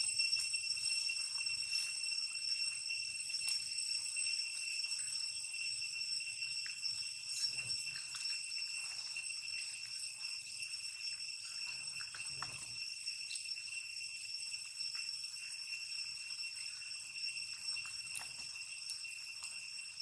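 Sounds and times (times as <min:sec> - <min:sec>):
high-pitched insect drone: 0:00.0 - 0:20.0.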